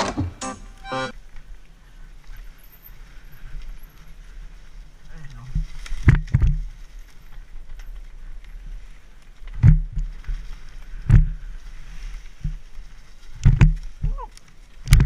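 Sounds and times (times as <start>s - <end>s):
wind: 0.0s - 15.0s
bike thumping over bumps: 5.5s - 6.8s, 9.4s - 11.6s, 12.3s - 15.0s.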